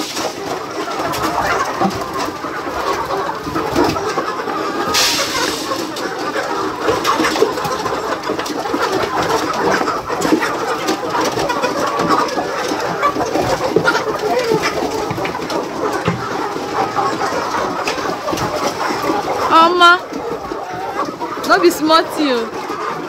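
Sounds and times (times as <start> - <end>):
flock of chickens calling: 0.0 - 23.0.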